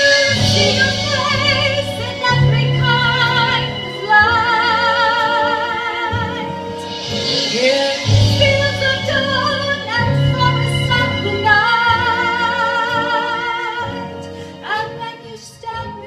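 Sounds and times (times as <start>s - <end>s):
woman singing through speaker: 0.0s - 6.8s, 7.4s - 16.0s
instrumental accompaniment: 0.0s - 16.0s.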